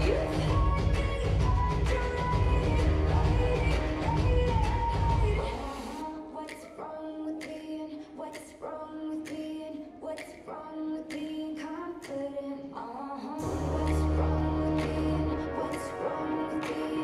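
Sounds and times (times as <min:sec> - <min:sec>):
bass and dance beat: 0:00.0 - 0:06.0, 0:13.4 - 0:17.0
female voice singing: 0:00.0 - 0:17.0.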